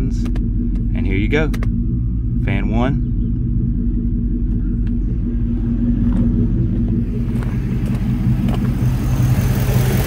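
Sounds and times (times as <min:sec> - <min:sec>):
car engine idling: 0:00.0 - 0:10.0
footsteps on gravel: 0:05.5 - 0:09.2.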